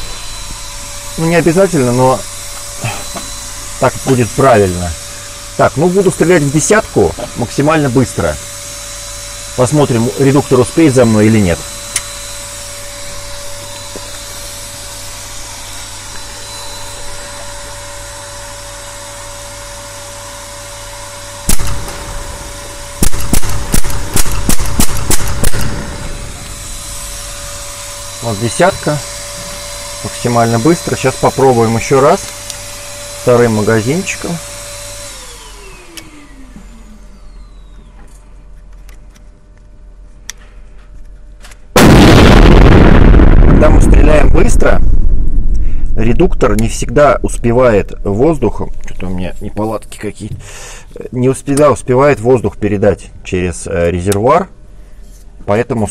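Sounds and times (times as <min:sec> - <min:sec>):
very loud noise: 0:00.0 - 0:37.8, 0:41.8 - 0:50.8
steady background hum: 0:00.0 - 0:55.9
air rifle shots: 0:21.5 - 0:26.2.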